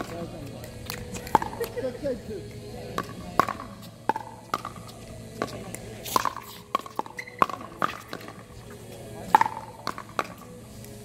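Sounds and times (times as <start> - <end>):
paddles hitting plastic ball: 3.0 - 10.5.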